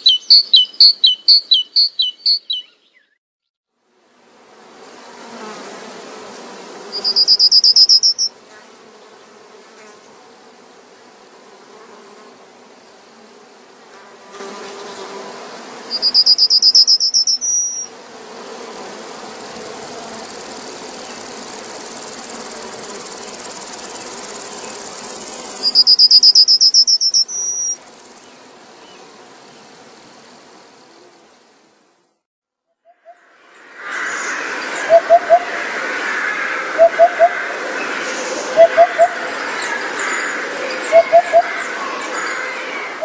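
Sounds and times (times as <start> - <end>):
insect high trills: 6.9 - 8.3, 15.9 - 17.9, 18.8 - 28.4, 33.0 - 43.0
faint steady hiss: 9.0 - 32.2.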